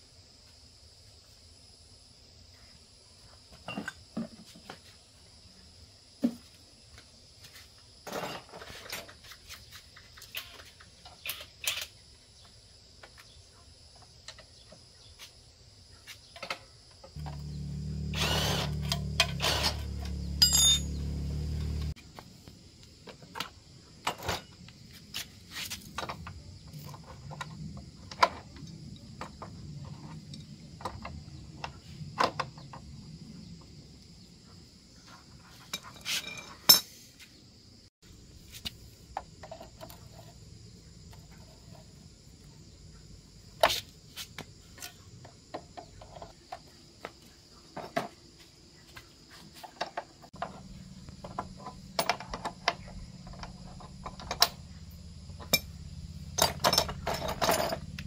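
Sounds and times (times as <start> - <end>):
high insect buzz: 17.2 - 22.0
metal tools clinking on concrete: 18.4 - 21.9, 35.6 - 37.0, 55.4 - 55.8, 56.4 - 58.0.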